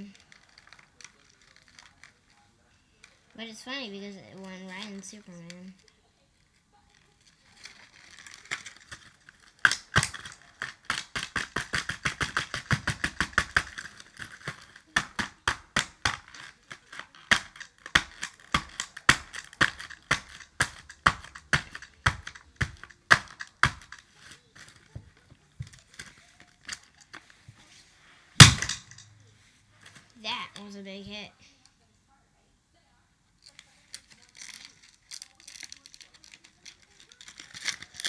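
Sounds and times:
screwdriver striking cardboard box: 9.7s - 24.0s.

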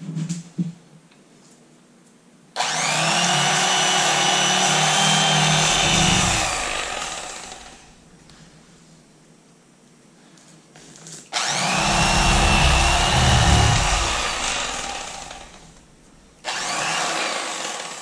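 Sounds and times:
electric knife motor whining: 2.6s - 8.1s, 11.4s - 17.3s.

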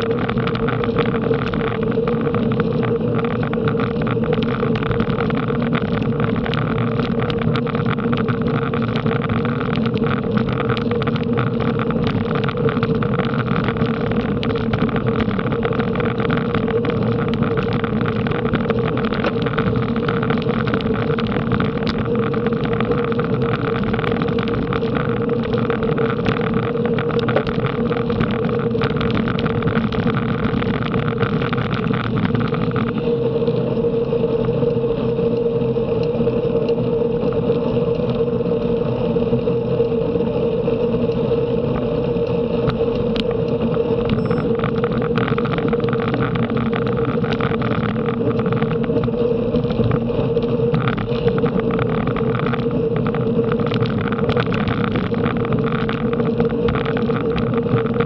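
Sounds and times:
constant hum: 0.0s - 58.0s
wind and road noise: 0.0s - 58.0s.

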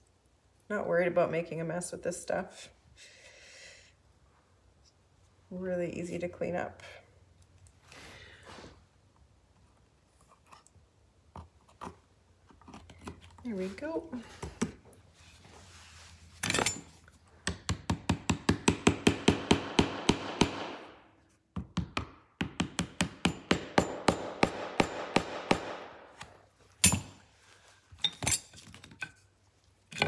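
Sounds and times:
small hammer tapping a nail: 17.4s - 20.8s, 21.5s - 25.7s.

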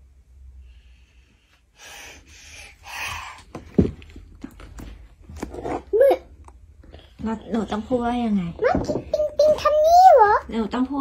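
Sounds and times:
child panting: 1.8s - 3.6s
knocks and rustles of handling: 3.4s - 5.9s, 8.6s - 9.8s.

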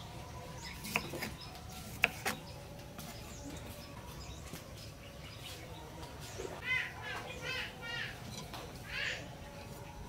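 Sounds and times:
knife cutting tomato: 0.7s - 2.5s.

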